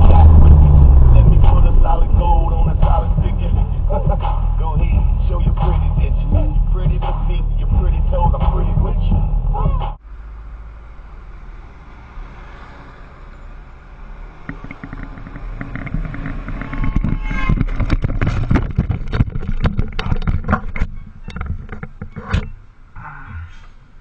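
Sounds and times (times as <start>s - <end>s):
scooter crashing and sliding: 14.1s - 22.6s
wind on microphone: 14.3s - 21.3s.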